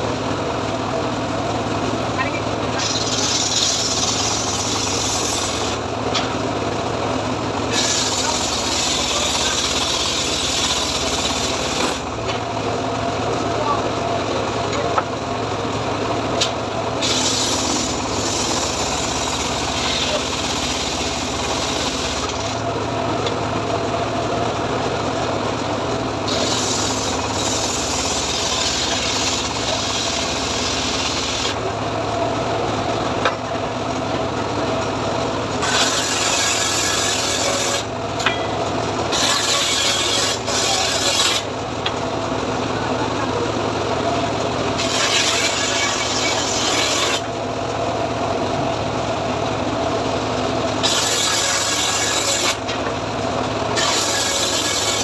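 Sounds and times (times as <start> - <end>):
saw engine and blade hum: 0.0 - 55.0
saw blade cutting wood: 2.7 - 6.3, 7.6 - 12.4, 16.4 - 22.6, 26.2 - 31.6, 35.6 - 42.0, 44.7 - 47.3, 50.8 - 52.9, 53.7 - 55.0.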